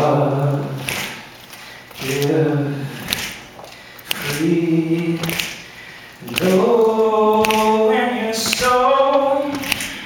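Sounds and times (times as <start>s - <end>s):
man singing a cappella: 0.0s - 0.9s, 2.0s - 3.2s, 4.2s - 10.0s.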